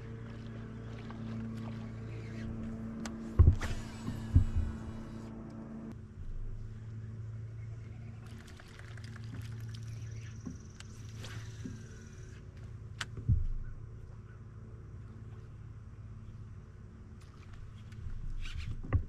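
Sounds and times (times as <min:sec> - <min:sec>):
fishing reel spool whirring: 0:00.0 - 0:05.9, 0:08.1 - 0:12.5
small electric motor humming: 0:01.6 - 0:05.9
heavy thumps on hull: 0:03.3 - 0:05.1.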